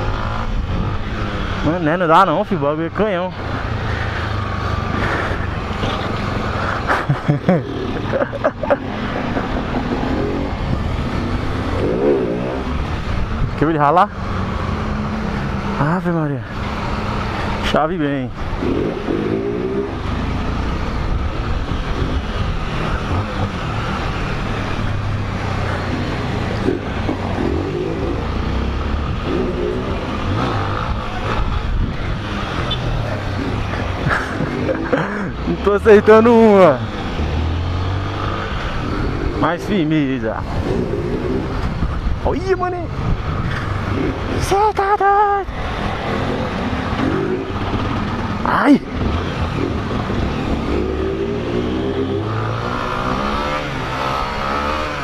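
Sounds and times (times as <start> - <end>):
nearby motorcycle: 0.0 - 13.5, 16.8 - 44.6, 45.5 - 55.0
wind rush over microphone: 30.8 - 34.9, 40.4 - 44.4.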